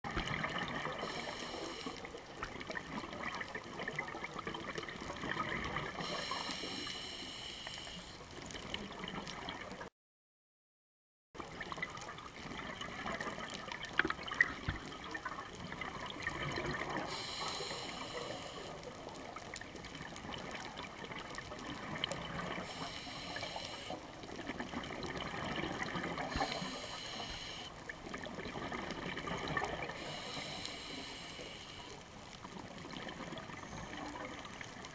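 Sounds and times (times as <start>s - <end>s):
underwater bubbles gurgling: 0.1s - 9.9s, 11.4s - 34.9s
watery hiss: 0.8s - 2.3s, 5.8s - 8.2s, 17.0s - 19.0s, 22.5s - 24.1s, 25.9s - 27.7s, 29.6s - 32.0s.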